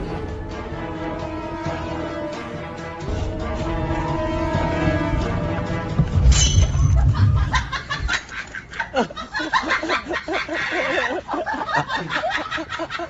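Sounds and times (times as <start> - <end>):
low rumbling noise: 0.0 - 8.2
person laughing: 6.9 - 13.0.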